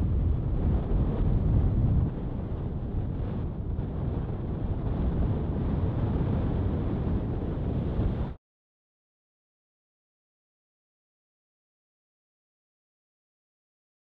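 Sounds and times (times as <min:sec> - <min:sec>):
wind rumbling on microphone: 0:00.0 - 0:08.4.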